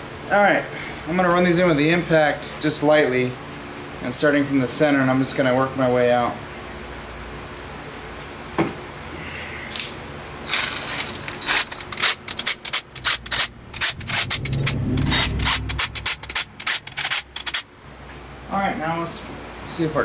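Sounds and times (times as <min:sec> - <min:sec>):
impact wrench short bursts: 0:10.4 - 0:17.7.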